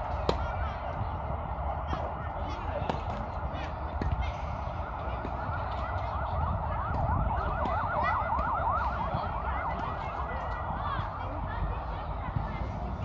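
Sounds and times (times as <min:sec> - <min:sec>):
electronic siren yelping: 0:05.4 - 0:10.3.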